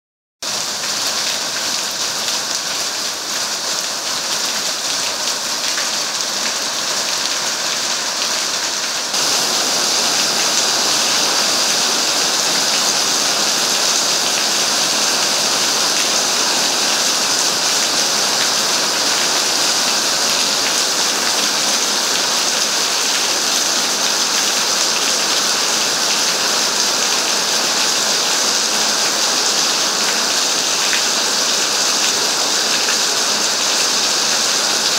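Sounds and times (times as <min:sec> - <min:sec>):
heavy rain on pavement: 0:00.4 - 0:34.9.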